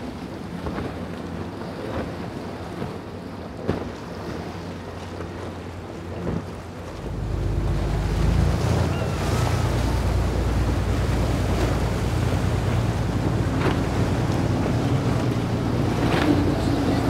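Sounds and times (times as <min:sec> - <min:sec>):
outboard engine drone: 0:00.0 - 0:17.0
wind buffeting microphone: 0:00.4 - 0:17.0
spray and waves rushing: 0:03.9 - 0:17.0.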